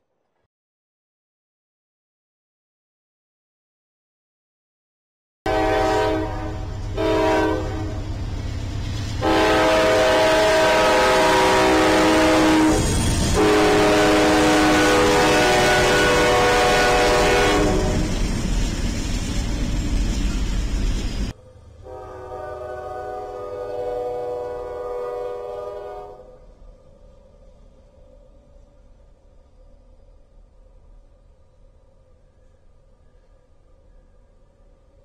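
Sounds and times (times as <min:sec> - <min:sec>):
locomotive air horn blasts: 0:05.5 - 0:08.0, 0:09.2 - 0:18.1, 0:21.8 - 0:26.4
train rumbling and clattering: 0:05.5 - 0:35.0.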